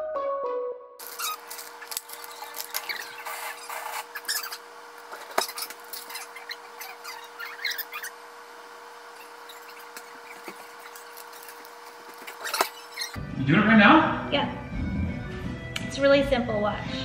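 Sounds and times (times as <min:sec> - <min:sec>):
music: 0:00.0 - 0:01.0, 0:13.2 - 0:17.0
wrappers crinkling: 0:01.0 - 0:04.4
steady low hum: 0:01.0 - 0:17.0.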